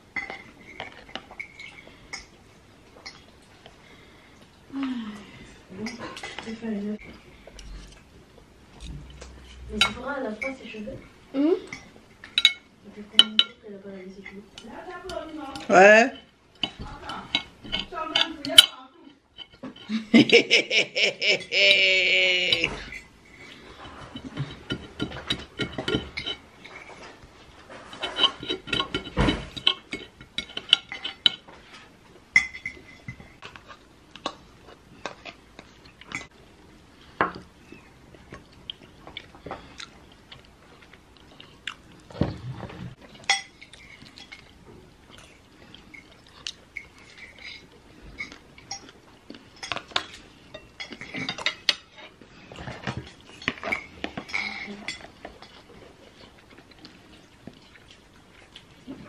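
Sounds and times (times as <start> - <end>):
cutlery scraping on plate: 14.2 - 20.0, 22.5 - 34.4, 42.9 - 56.7
chewing: 32.8 - 59.0.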